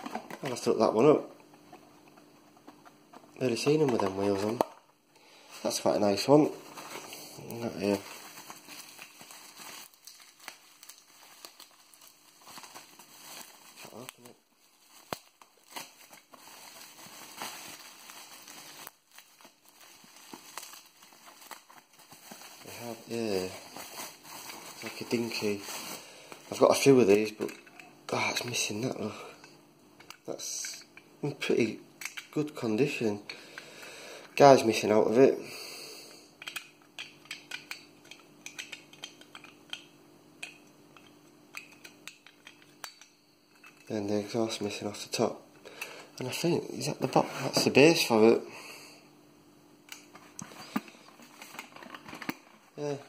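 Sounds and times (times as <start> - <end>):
bubble wrap crinkling: 5.6 - 29.1, 50.0 - 53.0
metal toy parts clicking: 36.4 - 39.8.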